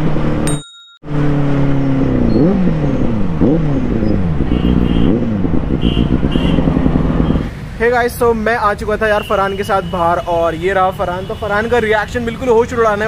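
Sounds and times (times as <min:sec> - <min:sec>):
motorcycle engine revving: 0:00.0 - 0:07.5.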